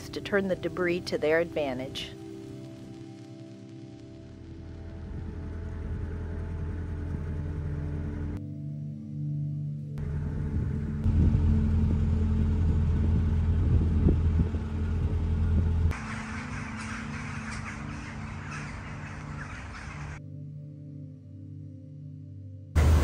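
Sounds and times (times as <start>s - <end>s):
soft background music: 0.0s - 23.0s
low rumble: 2.1s - 8.4s, 9.8s - 20.2s
birds chirping: 15.9s - 20.2s.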